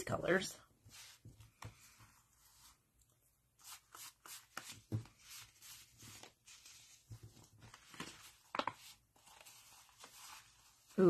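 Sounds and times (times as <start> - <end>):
paper rustling: 3.6 - 11.0.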